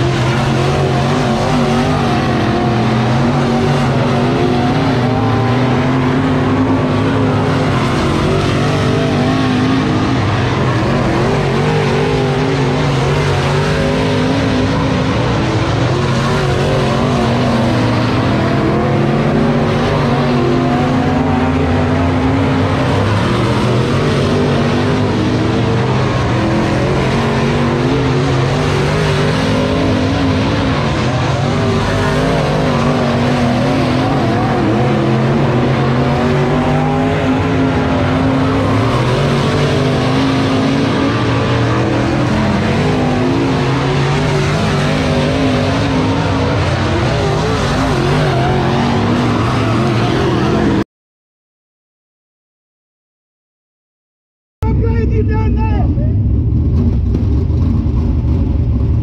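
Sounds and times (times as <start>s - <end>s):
race car engines roaring: 0.0s - 50.8s, 54.6s - 59.0s.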